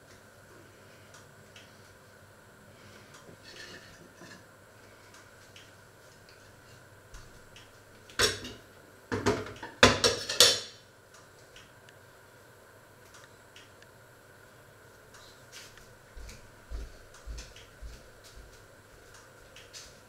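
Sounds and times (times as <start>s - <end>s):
kitchenware clinks and knocks: 9.2s - 10.7s.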